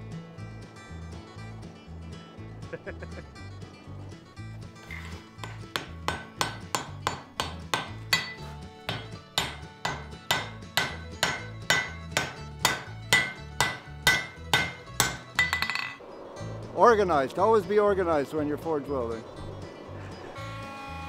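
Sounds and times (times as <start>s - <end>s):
background music: 0.0s - 21.0s
hammer striking steel on anvil: 5.4s - 16.0s.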